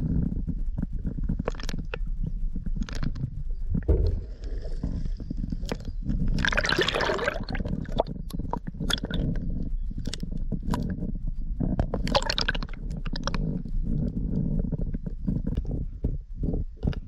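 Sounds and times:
underwater rumble of moving water: 0:00.0 - 0:17.0
underwater clicks and crackles: 0:00.6 - 0:17.0
rush of bubbles: 0:06.3 - 0:08.1, 0:12.1 - 0:12.7.

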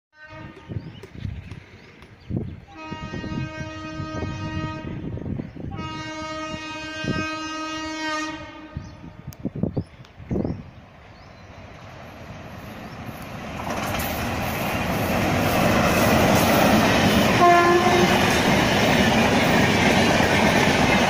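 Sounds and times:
train horn long blasts: 0:00.2 - 0:00.8, 0:02.7 - 0:09.2, 0:17.3 - 0:18.5.

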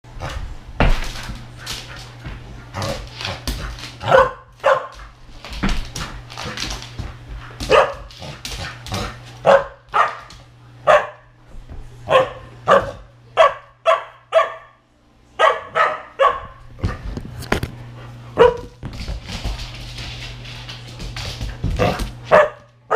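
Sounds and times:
puppy barking: 0:04.0 - 0:05.0, 0:07.7 - 0:08.1, 0:09.4 - 0:10.2, 0:10.8 - 0:11.2, 0:12.1 - 0:14.8, 0:15.4 - 0:16.6, 0:18.4 - 0:18.8, 0:22.3 - 0:22.9.

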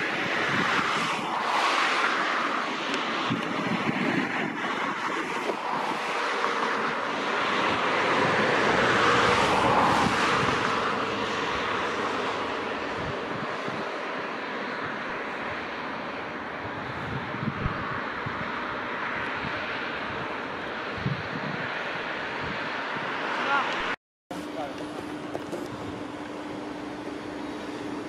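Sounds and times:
wind buffeting microphone: 0:00.0 - 0:01.6, 0:02.6 - 0:23.3
vehicles passing at speed: 0:00.0 - 0:28.0.

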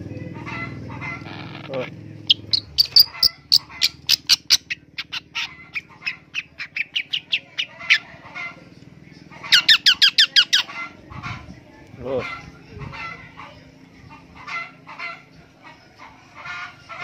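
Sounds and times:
bird giving harsh calls: 0:00.5 - 0:08.6, 0:09.4 - 0:11.5.

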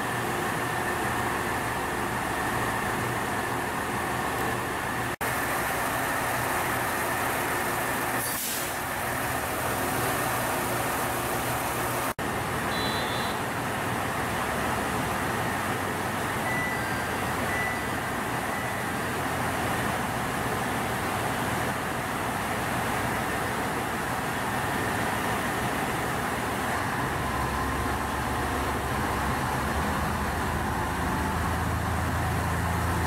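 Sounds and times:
diesel railcar engines idling: 0:00.0 - 0:33.0
brief hiss: 0:08.1 - 0:08.9.

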